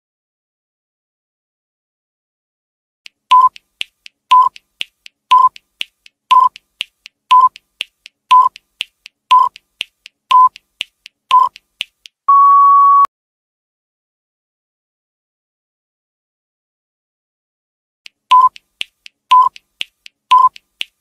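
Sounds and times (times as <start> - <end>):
quiet ticks: 3.1 - 12.2, 18.1 - 21.0
electronic countdown beeps: 3.3 - 3.7, 4.3 - 4.6, 5.3 - 5.6, 6.3 - 6.6, 7.3 - 7.6, 8.3 - 8.6, 9.3 - 9.6, 10.3 - 10.6, 11.3 - 11.6, 12.3 - 13.1, 18.3 - 18.7, 19.3 - 19.6, 20.3 - 20.6
long higher beep: 12.3 - 13.1.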